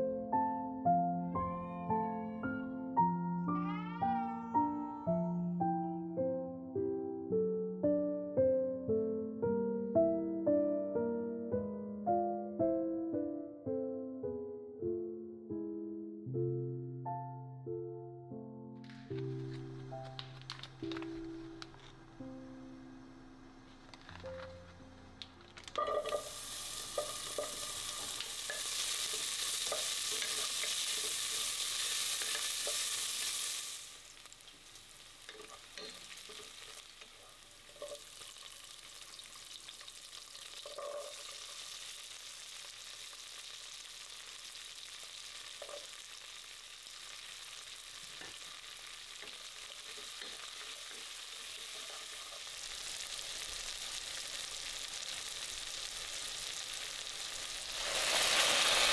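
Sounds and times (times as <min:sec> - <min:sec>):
food frying and sizzling: 0:18.8 - 0:58.9.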